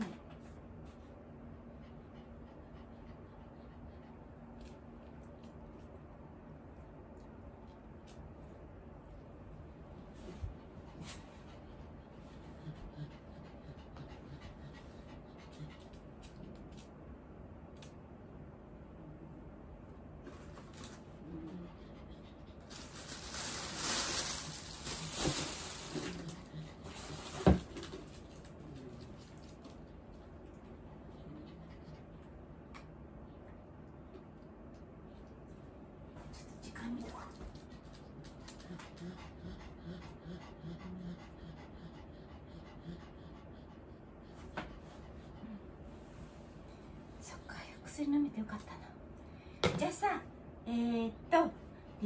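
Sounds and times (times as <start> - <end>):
plastic bag rustling: 22.7 - 28.5.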